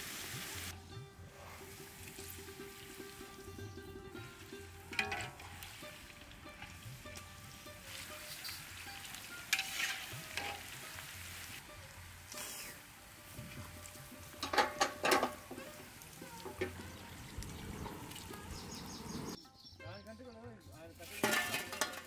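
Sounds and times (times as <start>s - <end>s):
deep-frying sizzle in oil: 0.0s - 0.7s, 4.8s - 19.3s
metal skimmer clinking on wok: 4.6s - 11.0s, 14.2s - 16.8s, 21.0s - 22.0s.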